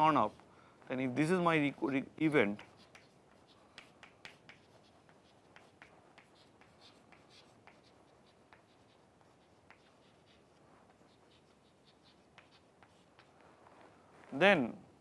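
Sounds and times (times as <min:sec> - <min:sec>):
chalk scratching on chalkboard: 0:00.0 - 0:00.5, 0:01.3 - 0:13.9.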